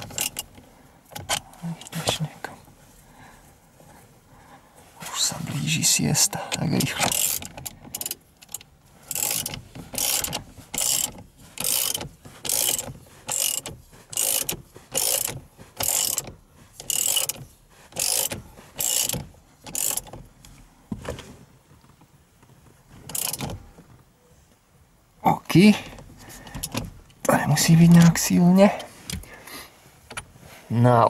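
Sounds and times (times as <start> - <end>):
ratchet wrench clicking: 0.0 - 0.5, 6.8 - 20.2, 23.1 - 23.6.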